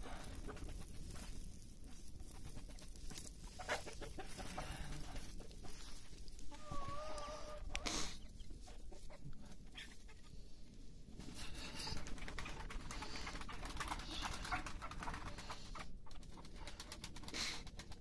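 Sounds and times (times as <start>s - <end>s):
hens and pigeons calling: 0.0s - 10.6s.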